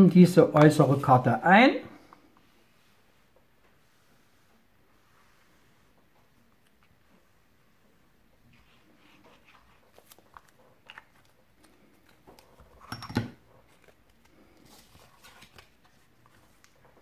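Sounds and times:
paper rustling: 0:08.5 - 0:12.8, 0:13.5 - 0:17.0.

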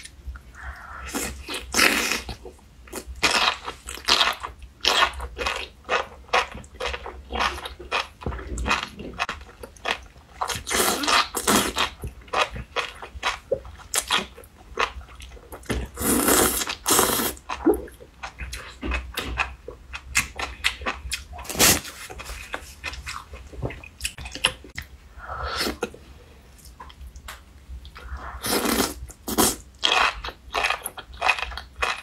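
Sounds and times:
slurping: 0:28.0 - 0:29.6.

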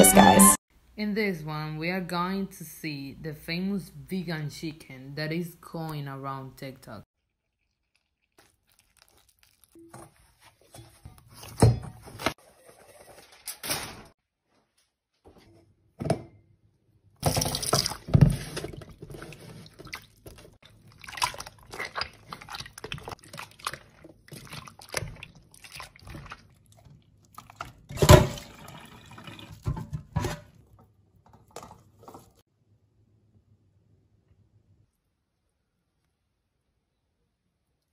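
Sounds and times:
water sloshing and dripping: 0:07.2 - 0:11.7, 0:17.2 - 0:32.4
dough squelching in water: 0:07.2 - 0:12.4, 0:17.2 - 0:32.4.

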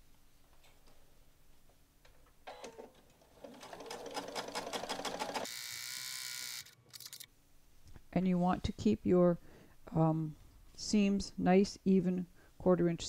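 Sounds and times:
sewing machine stitching: 0:02.5 - 0:05.9.

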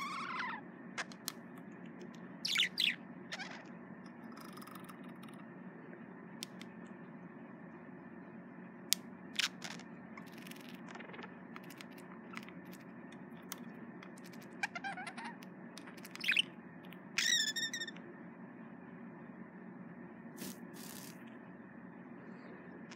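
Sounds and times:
budgerigar chattering: 0:02.4 - 0:03.7
budgerigar warbled call: 0:02.4 - 0:03.7
sharp clicks and chirps: 0:15.4 - 0:18.0.

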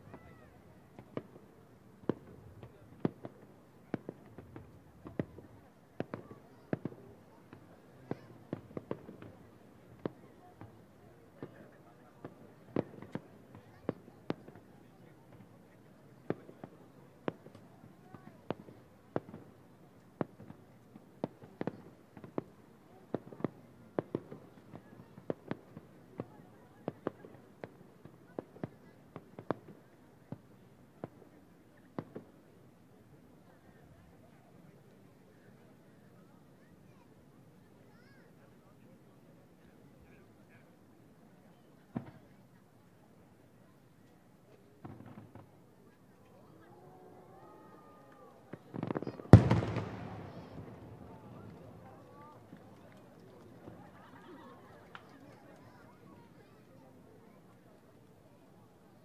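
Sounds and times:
faint steady background noise: 0:00.0 - 0:59.0
distant fireworks bangs: 0:44.8 - 0:45.5, 0:48.5 - 0:52.8.

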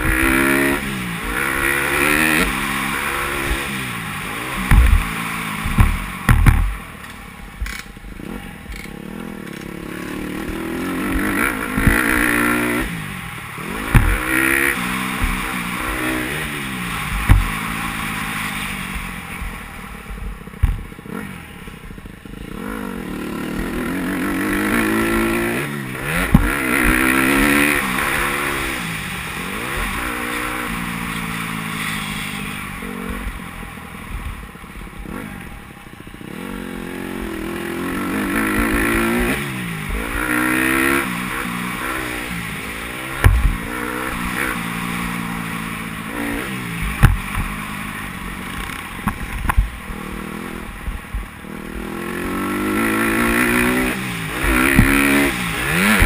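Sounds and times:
dirt bike engine revving: 0:00.0 - 0:56.0
sharp low thumps: 0:04.5 - 0:06.8, 0:10.4 - 0:12.5, 0:13.7 - 0:15.9, 0:17.1 - 0:17.6, 0:19.0 - 0:21.0, 0:26.2 - 0:27.4, 0:43.2 - 0:43.7, 0:46.8 - 0:47.6, 0:54.4 - 0:56.0.

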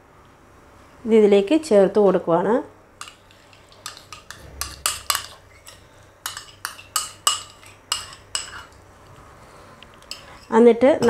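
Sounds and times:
utensil clinking against dish: 0:03.0 - 0:08.8.

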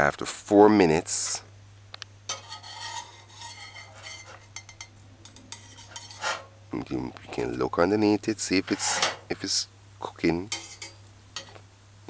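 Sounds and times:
metal spatula scraping a frying pan: 0:02.3 - 0:06.6, 0:08.4 - 0:09.3, 0:10.5 - 0:11.6.

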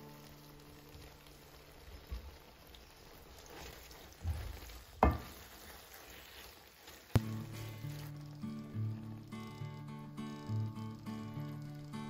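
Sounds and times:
wooden spoon stirring in a pan: 0:00.3 - 0:08.2
spoon knocking against pan: 0:05.0 - 0:05.4.

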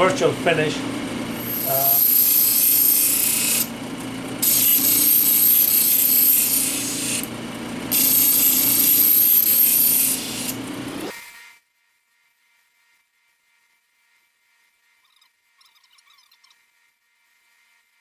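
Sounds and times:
machine motor hum: 0:00.0 - 0:11.1
stone rubbing on grinding wheel: 0:01.4 - 0:03.7, 0:04.4 - 0:07.3, 0:07.9 - 0:10.6.

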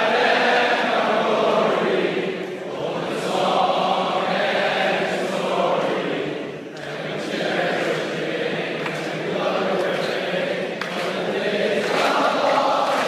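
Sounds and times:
choir singing sustained phrases: 0:00.0 - 0:13.0.

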